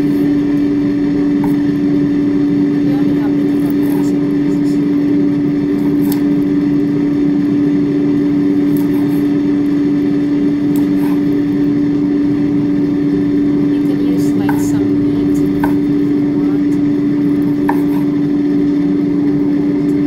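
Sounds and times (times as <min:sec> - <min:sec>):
air fryer fan humming: 0:00.0 - 0:20.0
knife tapping on cutting board: 0:15.6 - 0:15.8, 0:17.7 - 0:18.0.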